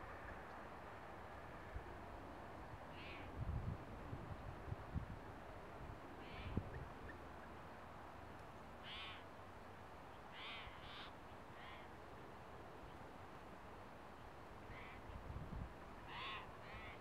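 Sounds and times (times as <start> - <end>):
faint bird calls: 2.9 - 3.4, 6.2 - 7.6, 8.8 - 9.3, 10.3 - 12.0, 14.6 - 15.2, 16.0 - 17.0.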